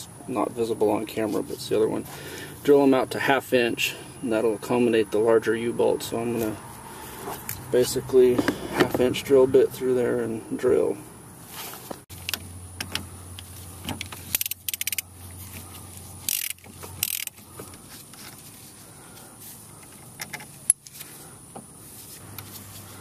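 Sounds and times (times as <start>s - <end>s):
ratchet clicks: 12.2s - 15.1s, 16.2s - 17.8s
sharp metallic click: 12.2s - 15.1s.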